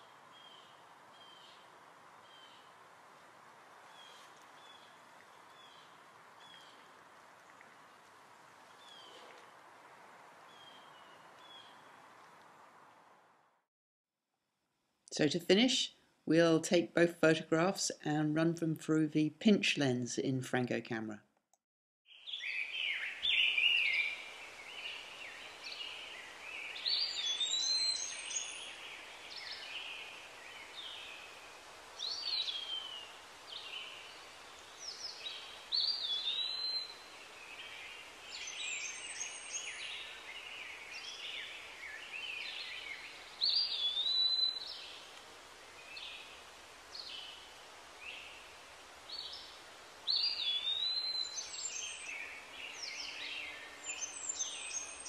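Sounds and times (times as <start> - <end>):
steady background hiss: 0.0 - 13.6, 22.1 - 55.0
birds chirping and whistling: 26.9 - 28.6, 43.4 - 44.8, 50.1 - 52.2.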